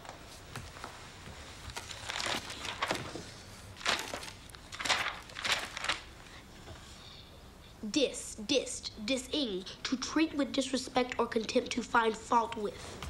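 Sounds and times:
pages flipping: 0:01.6 - 0:06.4.

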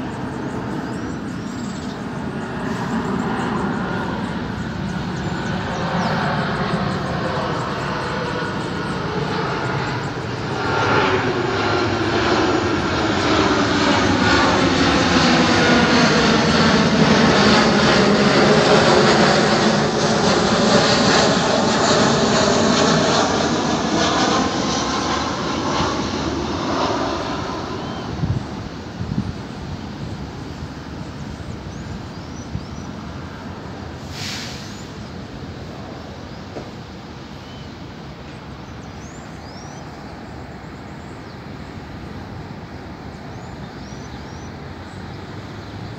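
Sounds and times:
small birds chirping: 0:00.0 - 0:12.3, 0:24.0 - 0:28.6, 0:29.3 - 0:33.4, 0:37.4 - 0:45.9
city traffic rumble: 0:00.0 - 0:45.9
jet airliner roaring overhead: 0:00.0 - 0:45.9.

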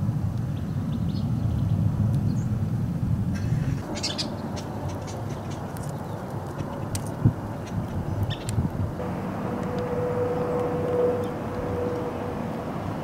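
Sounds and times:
birds chirping: 0:03.4 - 0:13.0.

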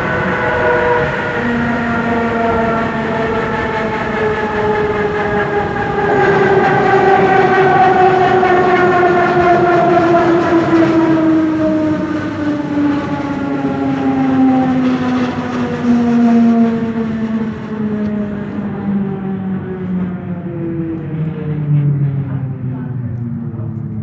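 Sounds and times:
train motors whining: 0:00.0 - 0:24.0
wheels rumbling on track: 0:00.0 - 0:24.0.

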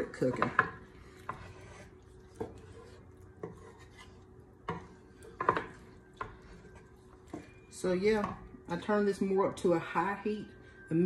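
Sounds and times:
wooden spoon stirring chili: 0:00.0 - 0:08.9
spoon knocking and scraping pan: 0:00.2 - 0:07.6.

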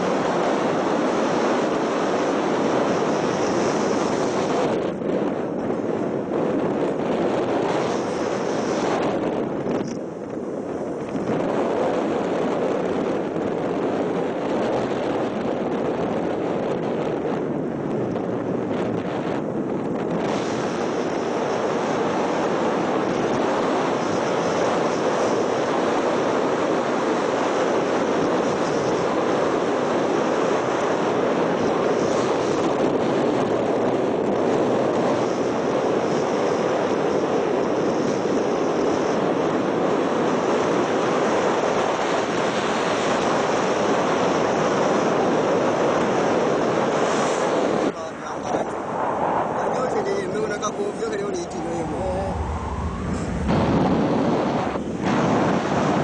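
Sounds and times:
road and wind noise: 0:00.0 - 0:56.0
wind buffeting microphone: 0:00.0 - 0:56.0.

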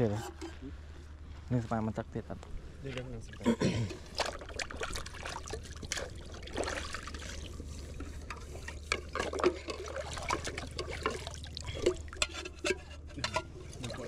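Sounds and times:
water trickling and pouring: 0:03.2 - 0:12.4, 0:13.2 - 0:14.0.

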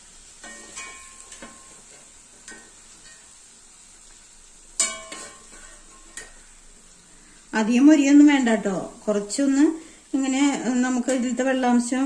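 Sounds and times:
chicken frying in hot oil: 0:00.0 - 0:12.0
metal ladle clinking on pan: 0:00.4 - 0:03.3, 0:04.8 - 0:06.4.

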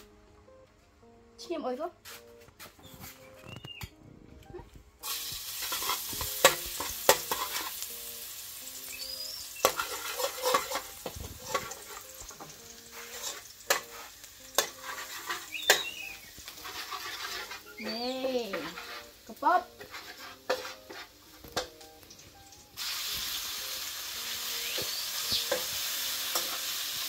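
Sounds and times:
metal spatula scraping wok: 0:05.0 - 0:07.9, 0:09.0 - 0:21.8, 0:24.2 - 0:27.0
garlic sizzling in a wok: 0:05.0 - 0:27.0.

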